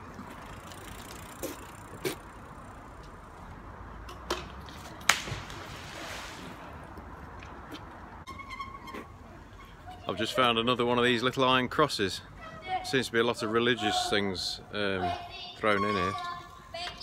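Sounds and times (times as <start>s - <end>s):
magnet hitting water with splash: 5.1s - 6.6s.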